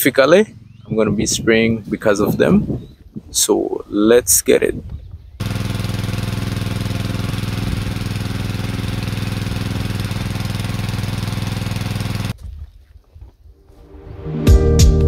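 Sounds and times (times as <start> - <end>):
small petrol engine running: 5.4 - 12.4.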